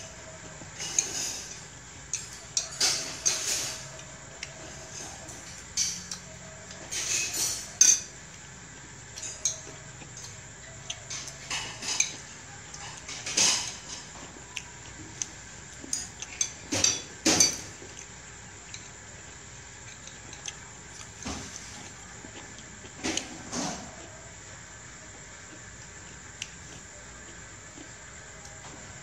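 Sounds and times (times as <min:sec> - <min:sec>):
cutlery clinking on ceramic plates: 0:00.7 - 0:08.1, 0:11.1 - 0:14.2, 0:15.8 - 0:17.8.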